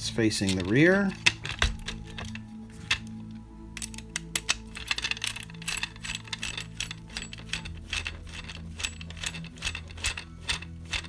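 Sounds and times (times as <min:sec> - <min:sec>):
screwdriver clicking and scraping: 0:00.4 - 0:11.0.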